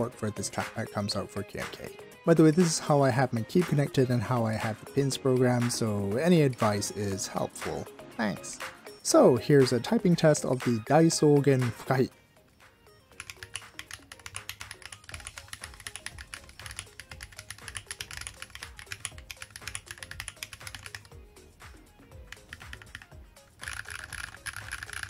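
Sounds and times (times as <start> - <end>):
background music: 0.0 - 25.0
mechanical keyboard typing: 13.2 - 21.1, 22.2 - 25.0.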